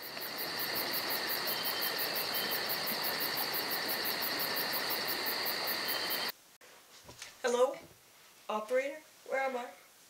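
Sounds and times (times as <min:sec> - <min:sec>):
high insect chirps: 0:00.0 - 0:06.3
constant hiss: 0:00.0 - 0:10.0.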